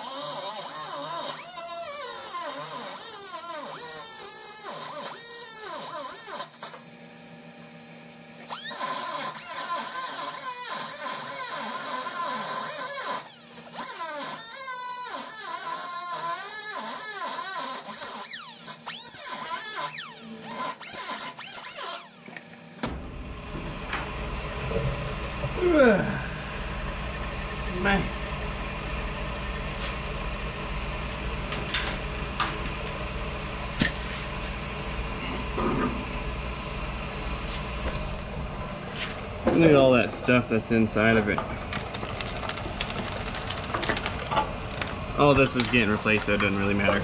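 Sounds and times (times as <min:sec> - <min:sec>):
air tool whining into metal: 0:00.0 - 0:06.7, 0:08.4 - 0:23.0
pneumatic grinder grinding metal: 0:00.0 - 0:06.9, 0:08.3 - 0:23.0.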